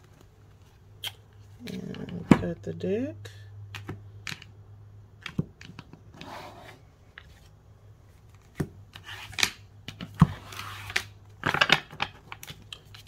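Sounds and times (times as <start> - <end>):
cards sliding: 8.2 - 11.2.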